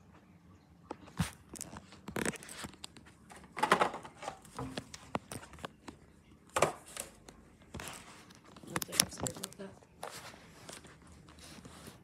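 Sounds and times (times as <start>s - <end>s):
phone handling rustling: 7.8s - 10.9s.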